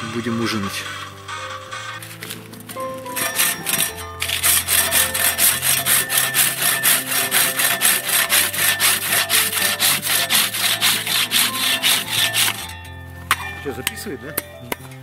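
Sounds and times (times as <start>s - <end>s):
hand saw cutting wood: 2.2s - 12.8s.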